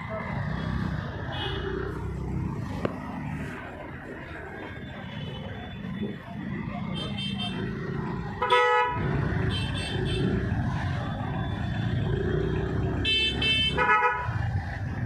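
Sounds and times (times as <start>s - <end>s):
motorcycle and scooter engines rumbling: 0.0s - 15.0s
vehicle horns honking: 8.4s - 10.4s, 13.0s - 14.4s.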